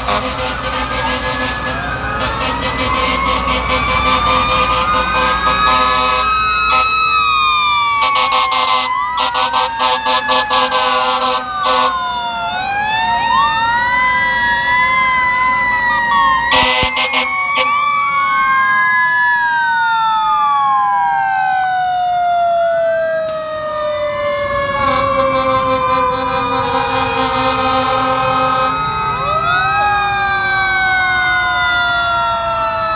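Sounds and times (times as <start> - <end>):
horn blasts: 0.0 - 6.9, 16.5 - 17.7, 24.8 - 28.8
fire truck sirens wailing: 0.0 - 32.9.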